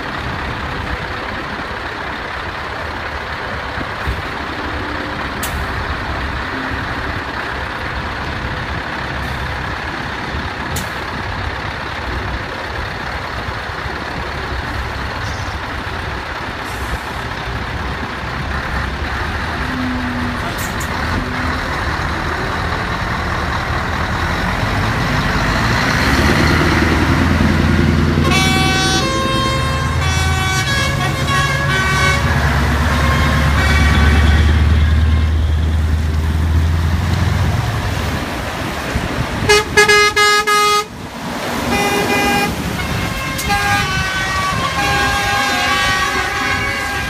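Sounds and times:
diesel truck engine drone: 0.0 - 47.0
air horn blasts: 28.1 - 35.7, 39.5 - 41.0, 41.7 - 47.0.

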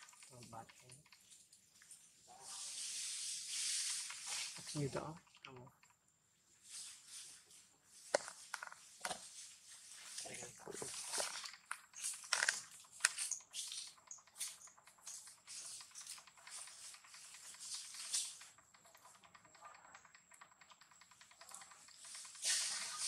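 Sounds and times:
scratches on gravel and leaves: 1.9 - 5.2, 6.6 - 11.4, 22.1 - 23.0.

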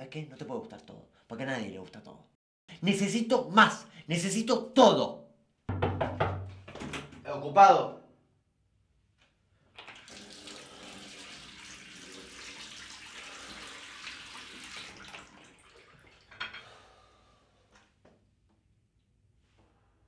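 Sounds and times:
man washing face: 9.6 - 16.9
tap water running into sink: 9.8 - 16.6.

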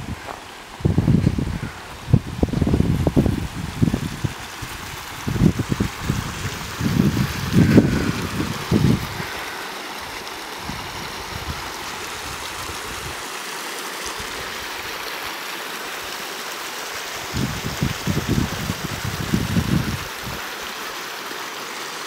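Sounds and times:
wind buffeting microphone: 0.0 - 9.4, 10.6 - 13.2, 17.2 - 20.4
creek water rushing: 0.0 - 22.0.

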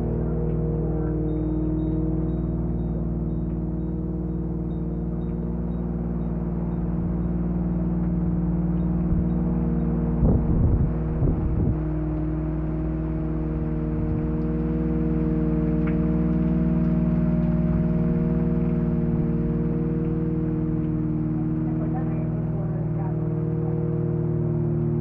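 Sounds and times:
synthesizer drone: 0.0 - 25.0
low thumps: 5.3 - 22.2.

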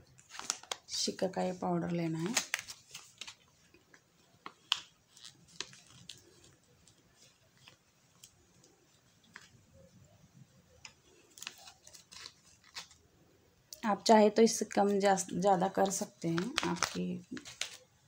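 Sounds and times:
plastic bag crinkling: 0.2 - 1.1, 2.1 - 9.6, 10.8 - 13.0, 14.6 - 18.0.

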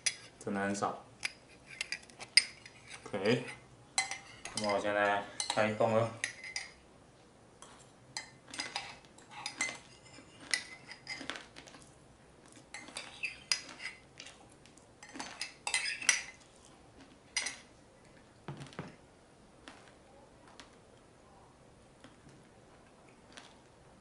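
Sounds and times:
metal spoon scraping a ceramic mug: 1.2 - 4.8, 8.6 - 11.2, 12.7 - 14.0, 15.1 - 16.4.

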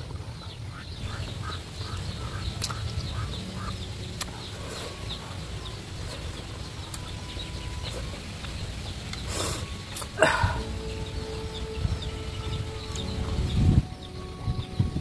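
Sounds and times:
steady low rumble: 0.0 - 15.0
chewing clicks: 4.2 - 4.4.

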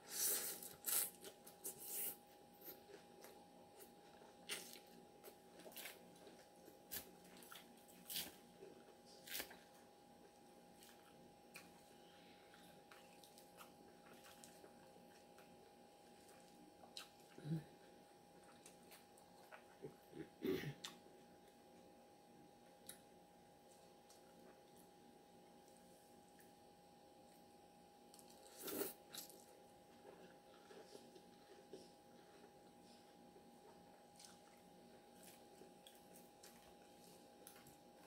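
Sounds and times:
faint steady hum: 0.0 - 38.0
chewing and mouth sounds: 12.5 - 17.4, 28.1 - 38.0.

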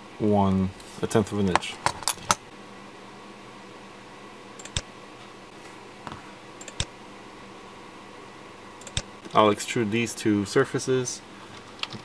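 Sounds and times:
faint hum: 0.0 - 12.0
computer mouse clicks: 4.6 - 4.9, 6.6 - 6.9, 8.8 - 9.1.

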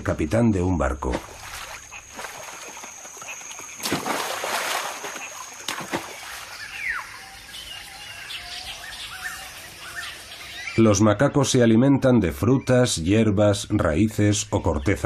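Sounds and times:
birds chirping: 0.0 - 15.0
water splashing in river: 1.1 - 7.0.

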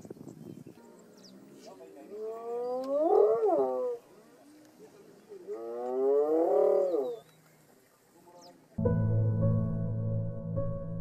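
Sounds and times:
hyenas calling: 0.9 - 4.0.

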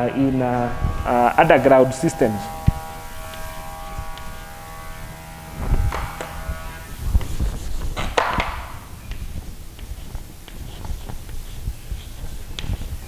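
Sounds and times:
low thuds: 0.0 - 11.4
chalk scratching on blackboard: 7.0 - 13.0.

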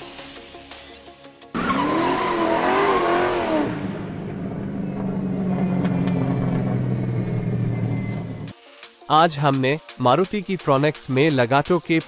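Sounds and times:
low engine rumble: 3.9 - 8.5.

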